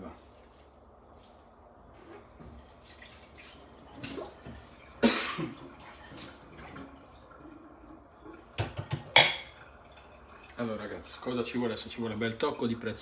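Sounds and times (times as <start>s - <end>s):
person coughing: 5.0s - 5.6s.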